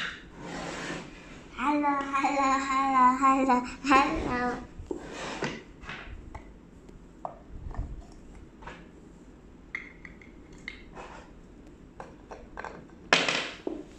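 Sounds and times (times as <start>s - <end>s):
wooden toy pieces knocking: 12.0s - 13.8s.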